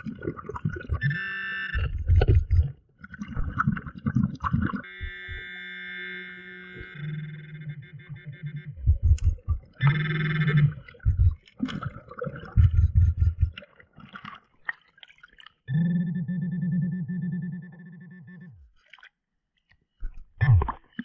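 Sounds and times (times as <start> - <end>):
muffled underwater thumps: 1.8 - 2.7, 8.8 - 9.9, 10.9 - 13.6
pinpointer electronic buzzing: 4.8 - 11.3.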